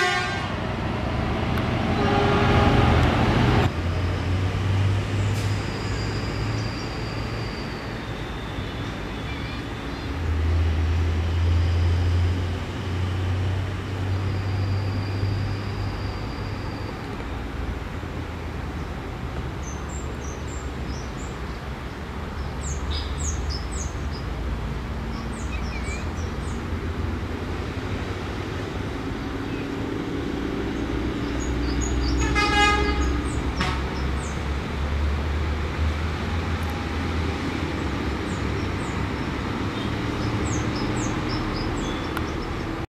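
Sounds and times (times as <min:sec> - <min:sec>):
diesel engine rumbling: 0:00.0 - 0:42.9
small birds chirping: 0:19.6 - 0:24.3, 0:38.2 - 0:42.8
short horn toot: 0:32.2 - 0:33.8.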